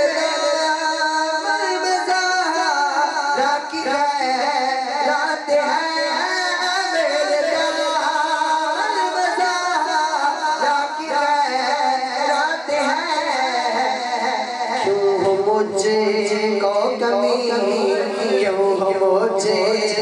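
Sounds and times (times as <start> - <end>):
man singing into a microphone: 0.0 - 20.0.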